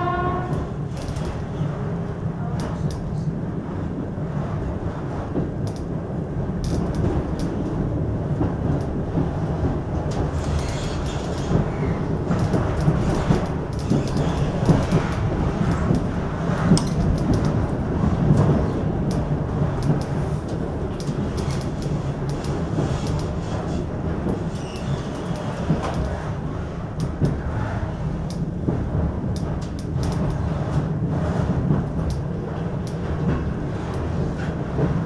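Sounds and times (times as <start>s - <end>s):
train wheels rumbling on rails: 0.0s - 35.0s
wheels clicking over track: 6.6s - 27.5s.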